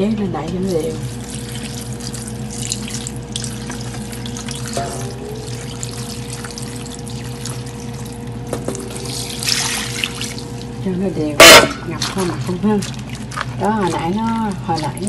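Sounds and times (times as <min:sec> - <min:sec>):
steady low hum: 0:00.0 - 0:15.0
brine pouring and splashing on leaves: 0:01.0 - 0:04.8, 0:09.0 - 0:10.7.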